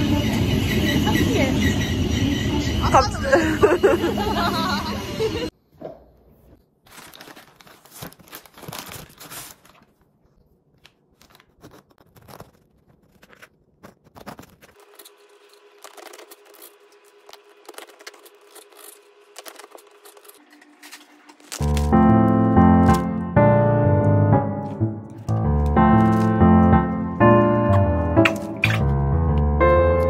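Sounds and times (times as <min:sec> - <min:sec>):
paper bag crinkling: 0:06.8 - 0:10.2, 0:10.8 - 0:23.2, 0:24.6 - 0:29.3.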